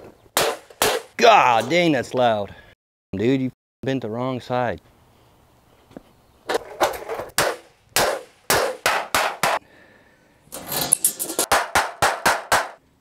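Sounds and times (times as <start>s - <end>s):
hammer clanging on metal sheet: 10.7s - 12.8s.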